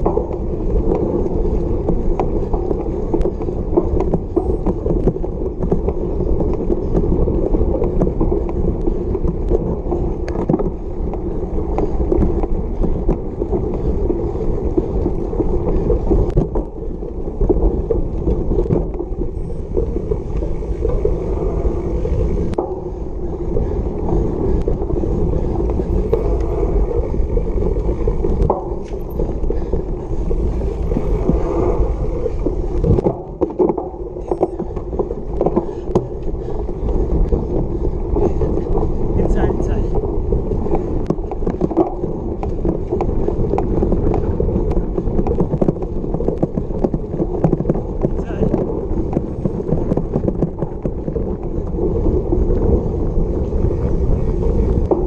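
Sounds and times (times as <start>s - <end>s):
bike rattling: 0.0s - 55.0s
knobby tyres rumbling on grass: 0.0s - 55.0s.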